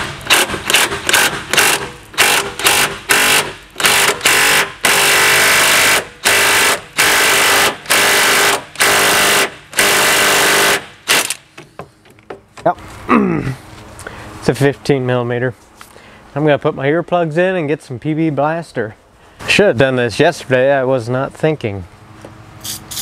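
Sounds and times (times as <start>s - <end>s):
impact wrench hammering: 0.0s - 12.7s.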